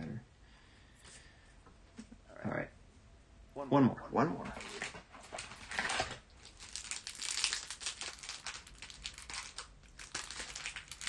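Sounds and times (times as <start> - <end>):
foil wrapper tearing and crinkling: 4.6 - 11.0.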